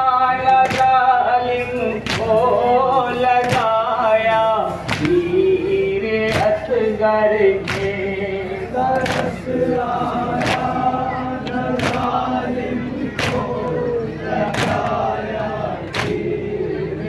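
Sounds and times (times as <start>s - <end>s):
men chanting: 0.0s - 17.0s
hand slaps on chest: 4.9s - 5.2s, 7.6s - 7.9s.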